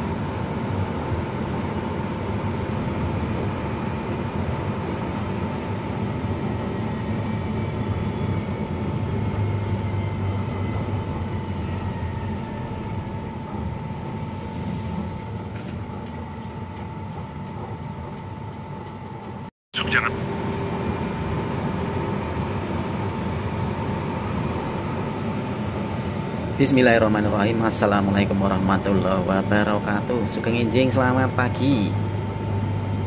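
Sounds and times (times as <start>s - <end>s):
bus engine and road rumble: 0.0s - 33.0s.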